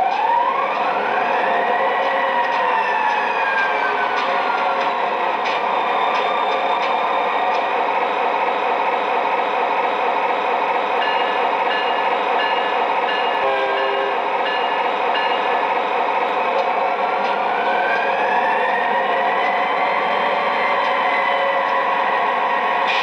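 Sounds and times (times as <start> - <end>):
model locomotive diesel rumble: 6.9 - 17.6.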